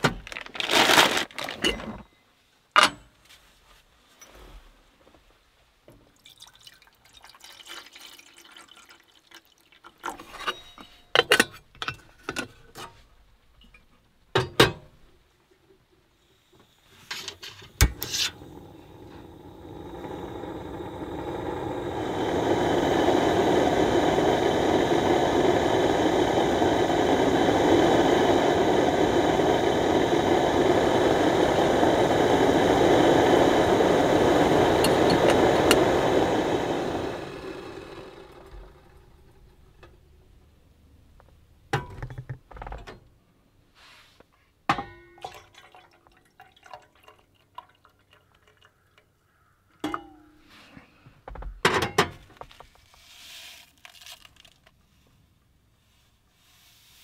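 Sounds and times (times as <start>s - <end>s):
water poured into kettle: 6.1s - 10.4s, 17.4s - 39.3s, 45.2s - 49.0s, 53.4s - 54.6s
clicks and knocks of stove: 14.3s - 14.9s, 51.4s - 52.3s
gas burner rushing: 16.9s - 41.1s.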